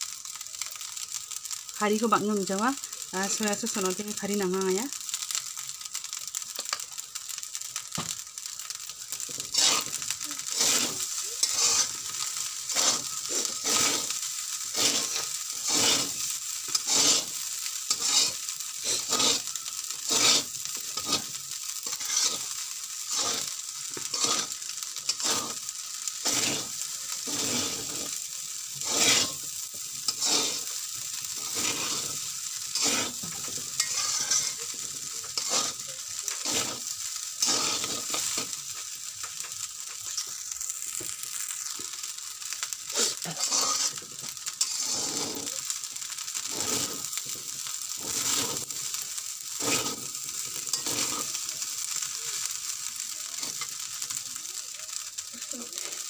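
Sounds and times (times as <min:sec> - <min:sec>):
rice sizzling: 0:00.0 - 0:56.0
metal spatula scraping wok: 0:09.2 - 0:38.8, 0:42.9 - 0:45.7, 0:46.4 - 0:49.0, 0:49.6 - 0:52.0, 0:53.4 - 0:53.7.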